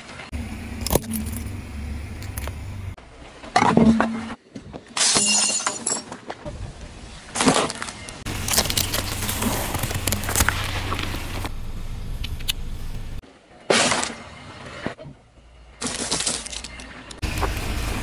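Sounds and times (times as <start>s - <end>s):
low engine hum: 0.3s - 3.0s, 8.3s - 13.2s, 17.2s - 18.0s
tyre crushing sweets and toys: 7.3s - 11.5s, 15.8s - 18.0s.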